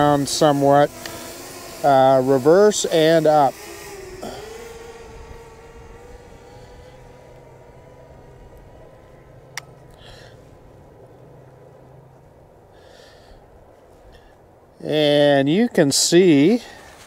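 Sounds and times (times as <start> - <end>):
drone propellers whining: 0.0 - 14.7
low wind rumble: 3.8 - 15.7.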